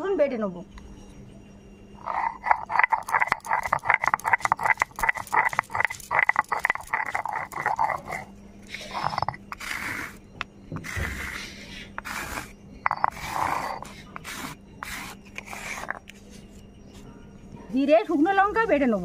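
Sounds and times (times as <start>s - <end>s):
stone roller knocking on stone slab: 2.0s - 8.3s, 8.9s - 11.4s, 12.0s - 16.0s
stone grinding on stone: 2.0s - 16.6s.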